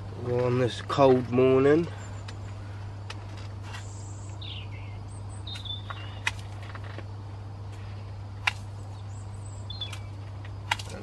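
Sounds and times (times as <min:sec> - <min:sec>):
small birds chirping: 0:00.0 - 0:11.0
steady low hum: 0:00.0 - 0:11.0.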